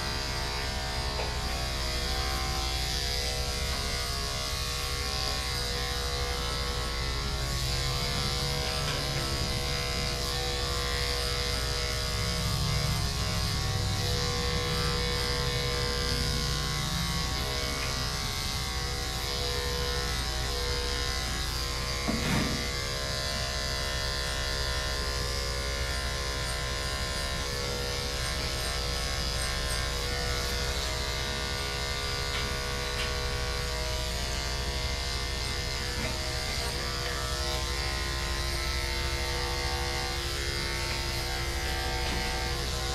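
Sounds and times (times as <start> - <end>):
electric clippers buzzing: 0.0 - 42.9.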